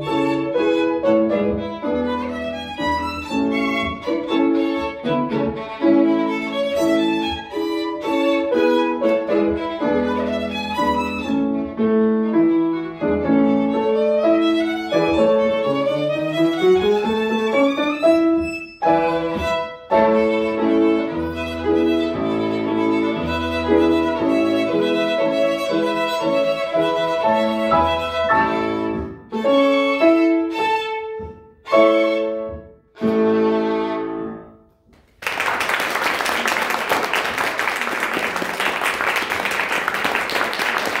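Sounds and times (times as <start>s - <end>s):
violin with piano: 0.0s - 34.8s
audience applause: 35.0s - 41.0s.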